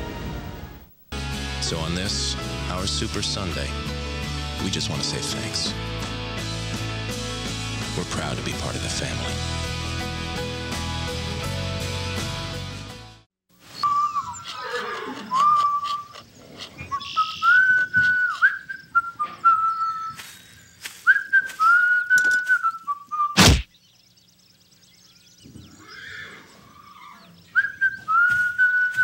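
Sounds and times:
person whistling a slow tune: 21.0s - 23.4s, 27.6s - 29.0s
loud sharp crack: 23.4s - 23.7s.

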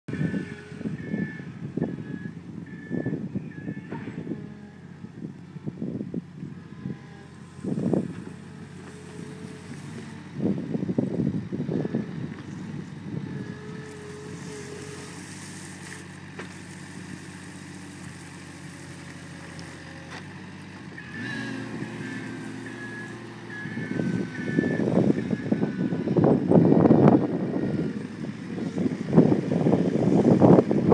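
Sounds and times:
diesel loader engine running: 0.1s - 30.9s
whining tone: 6.6s - 20.2s, 20.9s - 30.9s.

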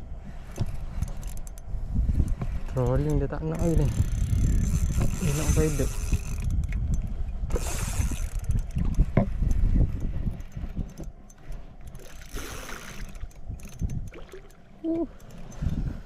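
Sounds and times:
water splashing against hull: 0.1s - 16.0s.

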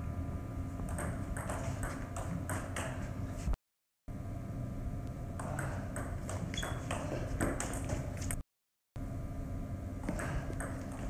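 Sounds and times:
ball bouncing on table: 0.9s - 3.1s, 5.4s - 8.0s, 10.0s - 11.0s
ping pong ball hitting paddles: 0.9s - 3.1s, 5.4s - 8.3s, 10.0s - 11.0s.

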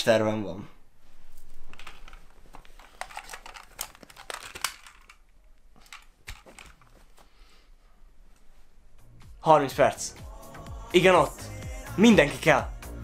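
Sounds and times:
plastic wrapping crinkling: 1.3s - 7.2s.

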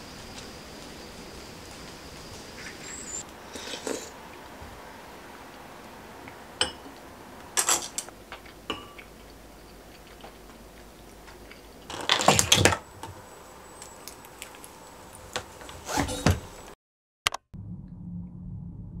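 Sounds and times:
spoon clinking on ceramic bowls: 8.7s - 10.0s.

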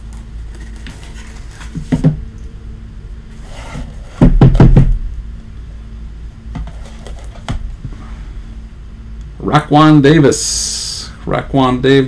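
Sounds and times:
knocks and thuds of card box: 1.6s - 2.2s, 3.8s - 5.1s.

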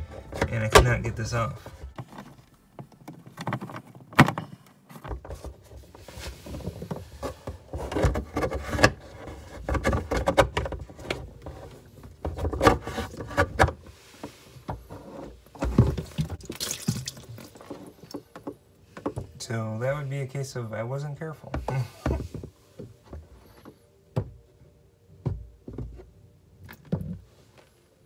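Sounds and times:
plastic scraping and rattling: 0.0s - 16.4s.

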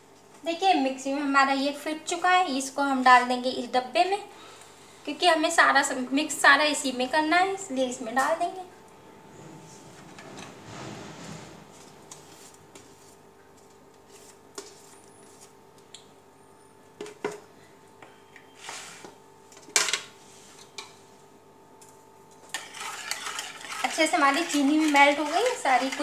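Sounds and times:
spatula scraping and tapping jar: 22.5s - 26.0s.

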